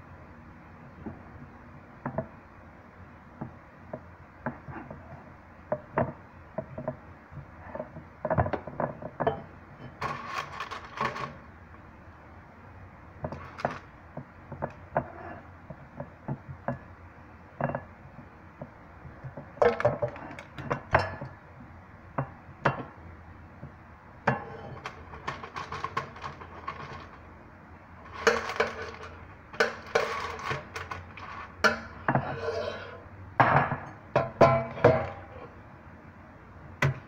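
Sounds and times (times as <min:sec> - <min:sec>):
metal fork clinking and scraping: 0:28.1 - 0:32.9.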